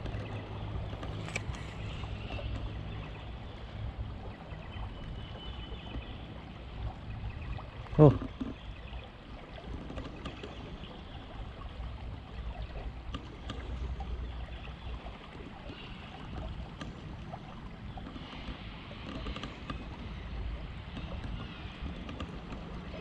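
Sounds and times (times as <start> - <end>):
small clicks: 0.0 - 2.7, 20.9 - 22.8
moving water: 0.0 - 23.0.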